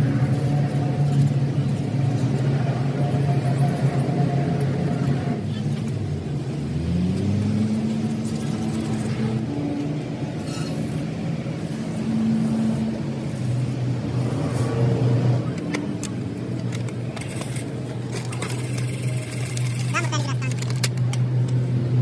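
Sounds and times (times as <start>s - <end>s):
vehicle engine running: 5.1s - 22.0s.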